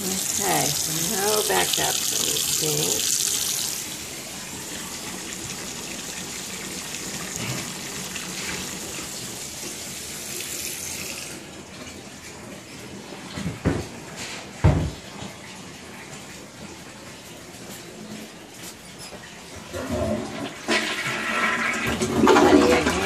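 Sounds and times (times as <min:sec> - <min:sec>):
faucet running into sink: 0:00.0 - 0:14.0.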